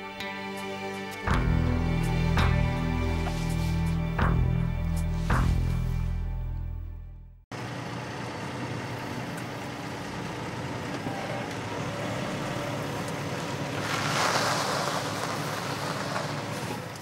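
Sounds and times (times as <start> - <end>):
engine hum: 0.0 - 17.0
street noise: 7.5 - 17.0
vehicle passing close by: 12.2 - 17.0.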